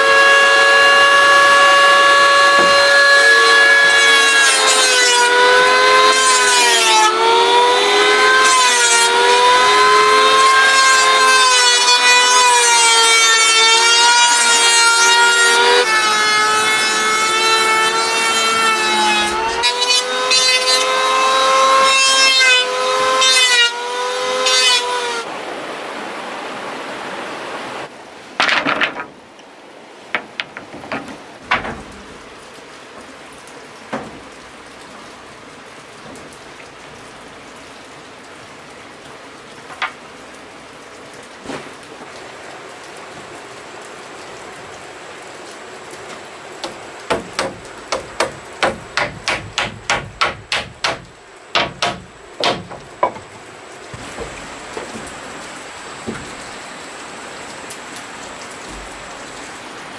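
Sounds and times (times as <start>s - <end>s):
hammer striking wood: 2.5s - 2.9s, 30.2s - 32.0s, 46.6s - 53.4s.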